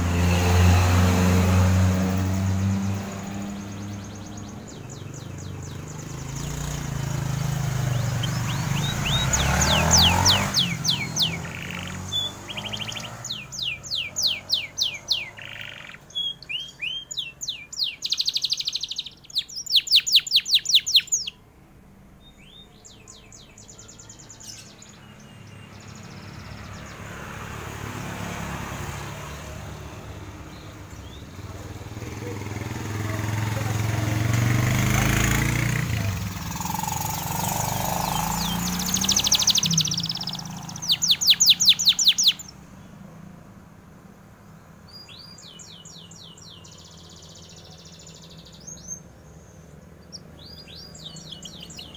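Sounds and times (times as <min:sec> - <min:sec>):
canary trilling: 0:00.0 - 0:21.4, 0:29.6 - 0:42.6, 0:50.0 - 0:51.9
passing vehicle rumble: 0:00.0 - 0:51.9.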